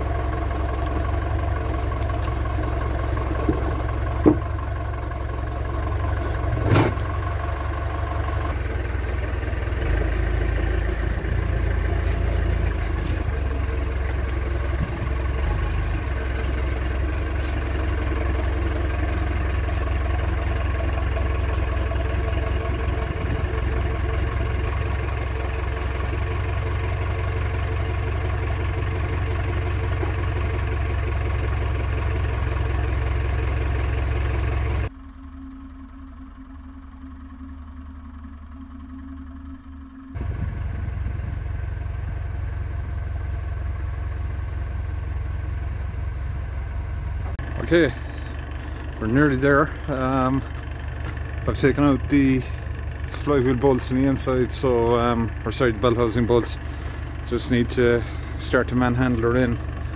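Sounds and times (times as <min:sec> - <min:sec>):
tractor engine running: 0:00.0 - 0:59.9.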